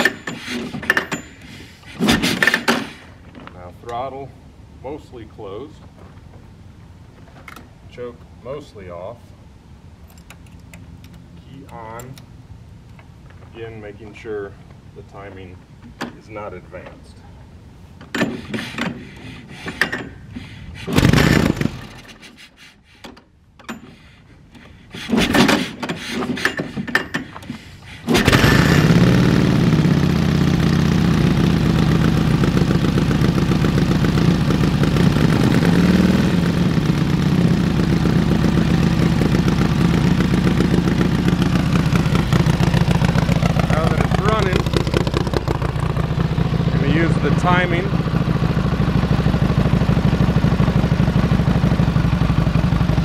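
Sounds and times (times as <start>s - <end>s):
motorcycle kick-starter kicks: 18.0s - 22.3s, 38.0s - 46.7s
motorcycle engine idling: 27.1s - 53.0s.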